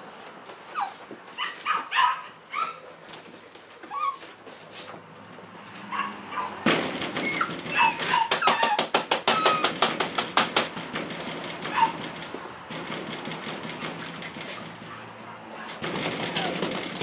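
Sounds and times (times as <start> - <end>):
puppies whimpering and yipping: 0.0 - 2.9, 3.8 - 4.4, 5.6 - 9.8, 11.5 - 12.1, 12.9 - 14.7, 15.6 - 16.8.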